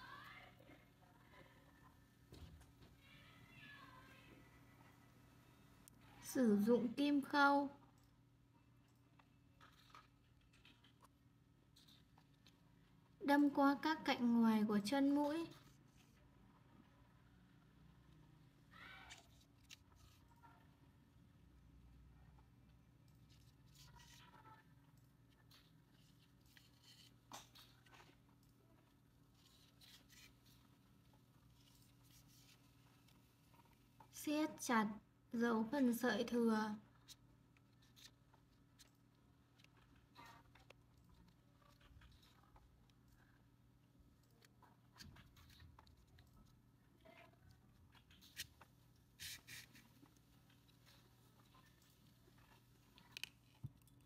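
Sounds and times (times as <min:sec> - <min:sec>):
scratchy rustle: 0:23.2 - 0:24.7, 0:25.3 - 0:28.3, 0:29.3 - 0:33.8.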